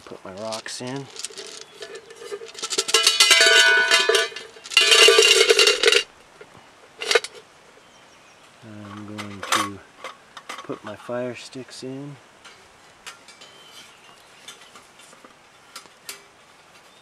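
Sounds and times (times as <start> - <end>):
rocks clattering in metal pot: 0.2 - 6.1, 7.0 - 7.4.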